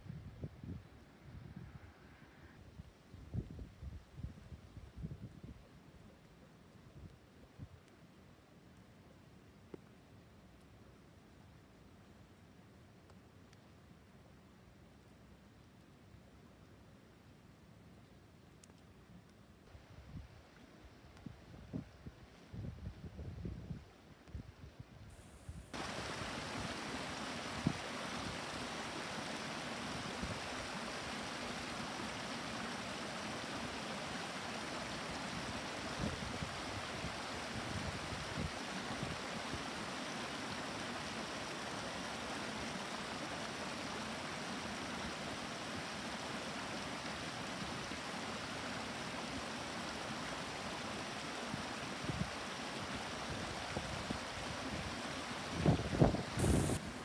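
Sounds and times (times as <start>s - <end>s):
stream rushing over rocks: 25.7s - 57.0s.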